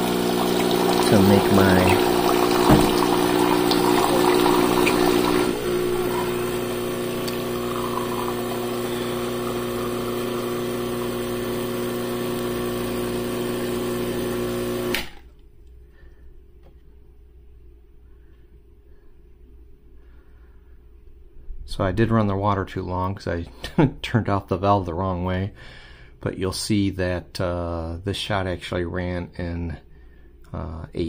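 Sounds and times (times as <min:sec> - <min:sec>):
espresso machine pump humming: 0:00.0 - 0:15.2.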